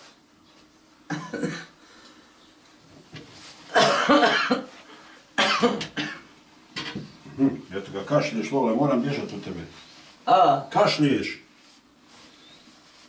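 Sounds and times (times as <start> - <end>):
elderly woman coughing: 1.1 - 1.8, 3.7 - 4.7, 5.4 - 6.2.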